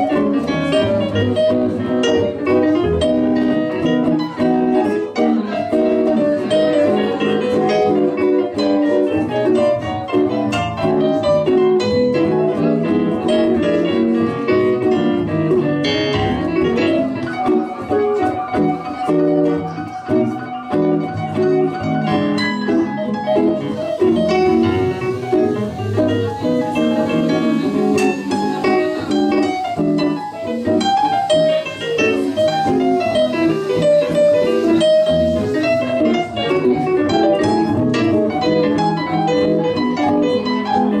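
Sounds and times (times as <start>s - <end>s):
electric keyboard chords: 0.0s - 41.0s
jazz guitar: 0.0s - 41.0s.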